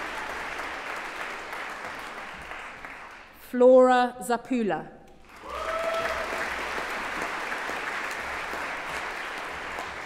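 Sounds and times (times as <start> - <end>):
audience applauding: 0.0 - 3.4, 5.2 - 10.0
person whooping: 5.4 - 6.3.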